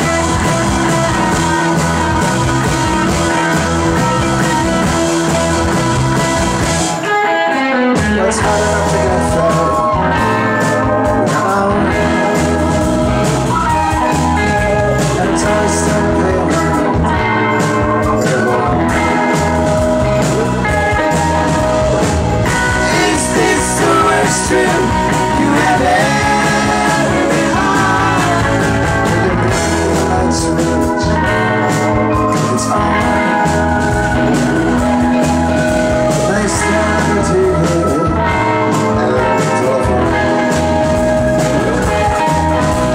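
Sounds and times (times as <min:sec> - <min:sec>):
drum kit: 0:00.0 - 0:42.9
electric bass: 0:00.0 - 0:42.9
electric guitar: 0:00.0 - 0:42.9
man singing: 0:07.7 - 0:13.2, 0:14.0 - 0:21.6, 0:22.6 - 0:34.3, 0:35.9 - 0:42.7.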